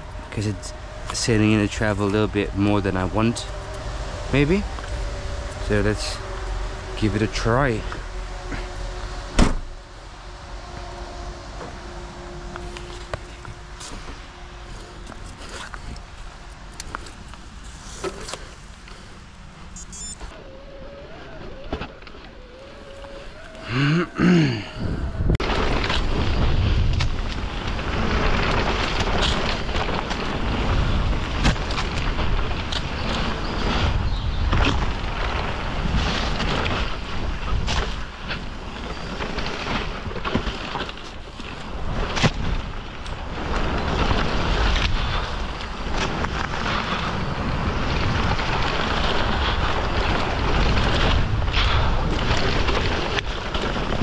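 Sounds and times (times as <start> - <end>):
rising and falling tone: 19.8 - 25.4
wind rush on microphone: 20.0 - 54.0
tyres rolling over dirt: 20.4 - 54.0.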